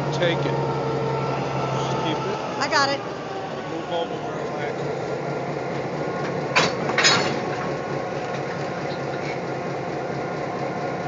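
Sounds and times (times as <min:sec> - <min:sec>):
locomotive running: 0:00.0 - 0:11.0.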